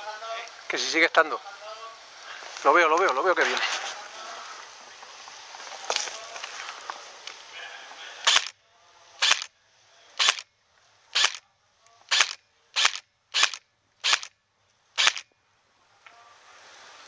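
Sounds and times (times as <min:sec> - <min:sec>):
airsoft rifle shots: 0:08.2 - 0:08.6, 0:09.2 - 0:09.5, 0:10.2 - 0:10.4, 0:11.2 - 0:11.4, 0:12.1 - 0:14.3, 0:15.0 - 0:15.2.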